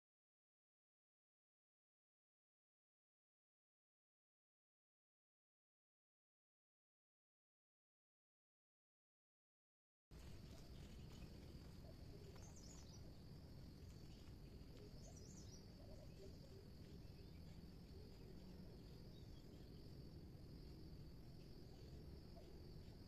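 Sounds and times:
insects droning: 10.1s - 23.0s
low background hum: 10.1s - 23.0s
bird chirping: 10.2s - 23.0s.

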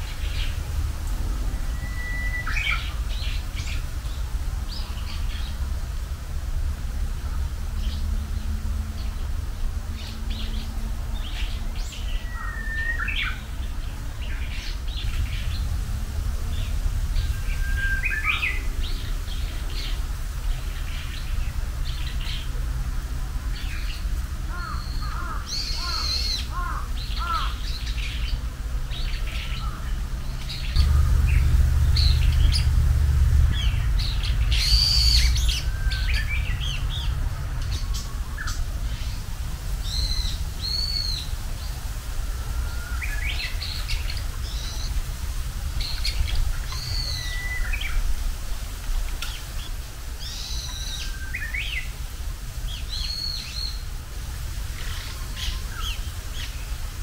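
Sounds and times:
songbirds chirping: 0.0s - 57.0s
low rumble: 13.6s - 22.2s, 29.6s - 42.7s.

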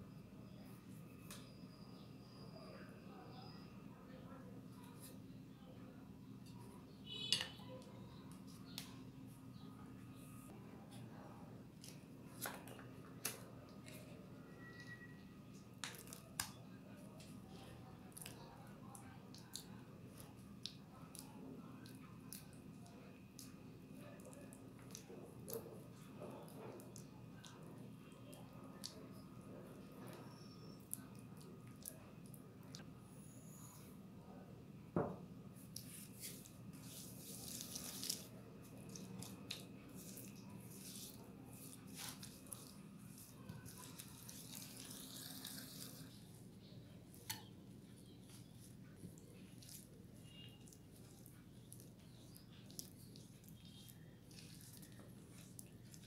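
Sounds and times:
faint steady hum: 0.0s - 56.0s
spatula squishing and scraping bowl: 35.9s - 46.0s.

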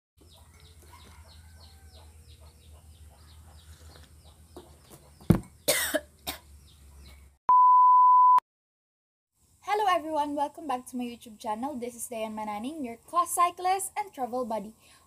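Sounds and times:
short cough: 5.7s - 6.5s.

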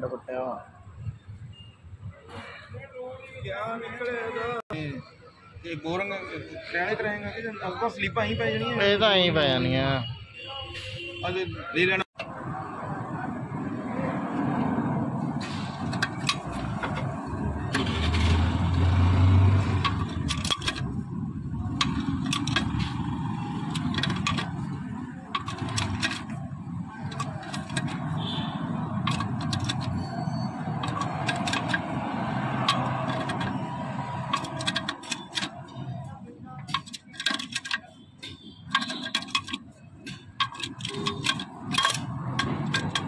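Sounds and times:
workshop noise: 11.8s - 43.0s
metal sleeve scraping in bore: 15.3s - 35.9s, 36.6s - 43.0s
sleeve puller clicking and creaking: 15.8s - 21.0s, 21.6s - 35.8s, 36.7s - 43.0s.

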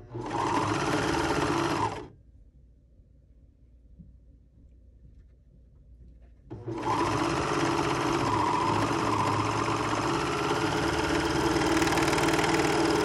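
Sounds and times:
serger sewing machine running: 0.1s - 2.1s, 6.5s - 13.0s.

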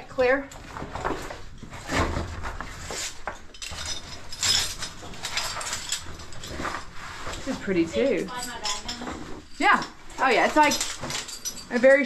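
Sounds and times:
clothing rubbing and shuffling: 0.0s - 12.0s
gear clinking against rock: 2.6s - 12.0s.

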